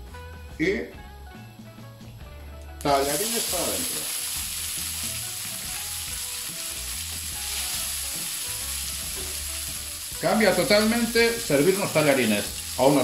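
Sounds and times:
pasta sizzling in oil: 2.8s - 13.0s.

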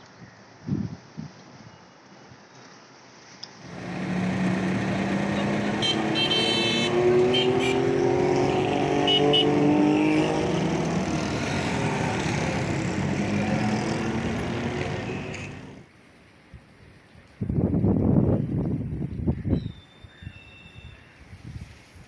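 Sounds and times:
steady traffic rush: 0.0s - 19.6s
motorcycle and vehicle engines passing: 3.6s - 15.9s.

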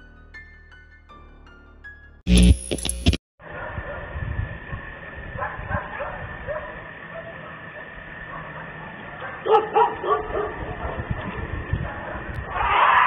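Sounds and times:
steady high-pitched tone: 2.3s - 3.2s
distant dogs barking: 3.4s - 4.2s, 5.3s - 12.4s.

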